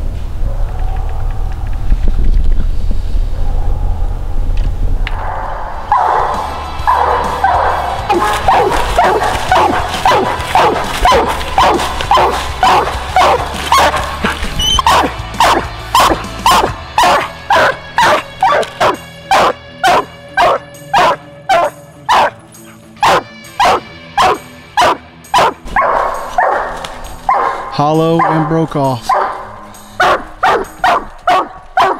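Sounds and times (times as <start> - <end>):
dog barking: 5.9 - 22.4, 23.0 - 31.9.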